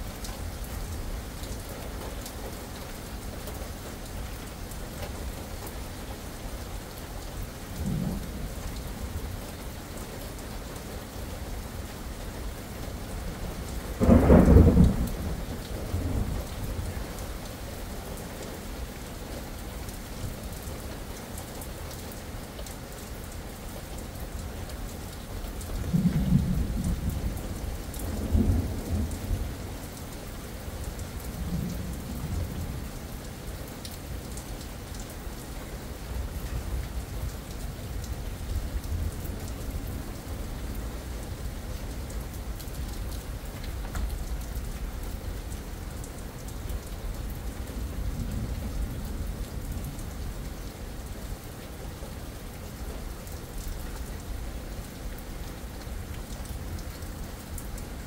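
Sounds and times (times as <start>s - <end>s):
steady rain falling: 0.0s - 58.0s
low thunder rumbling: 7.8s - 8.6s, 14.0s - 16.9s, 25.8s - 29.7s.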